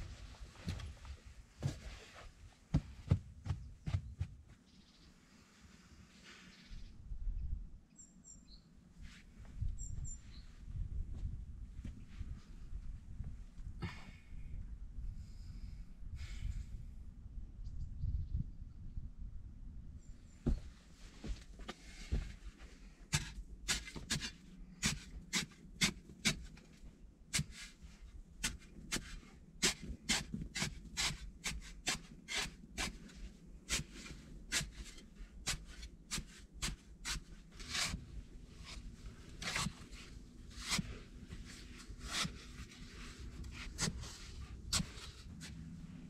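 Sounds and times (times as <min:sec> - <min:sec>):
shovel scraping sandy soil: 0:23.1 - 0:45.9.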